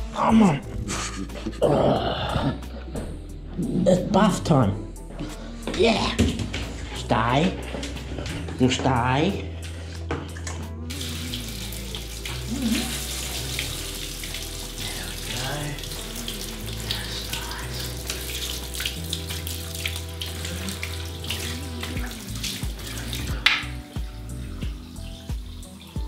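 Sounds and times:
water spraying from shower hose: 10.9s - 26.0s.

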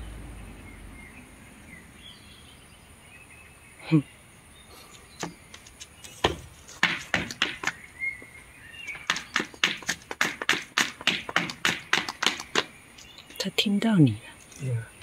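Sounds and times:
sharp clicks or taps: 9.0s - 13.4s.

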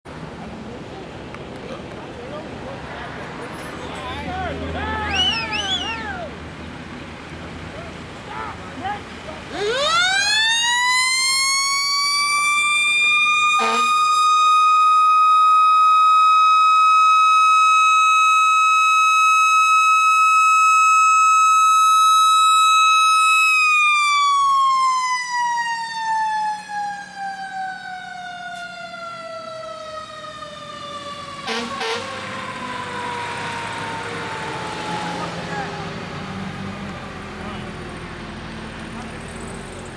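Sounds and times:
truck engine rumbling: 0.1s - 39.9s
mechanical siren wailing: 9.5s - 35.4s.

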